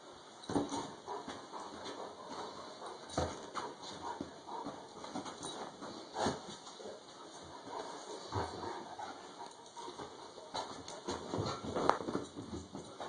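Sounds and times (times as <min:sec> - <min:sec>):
bedding rustling: 0:00.3 - 0:13.0.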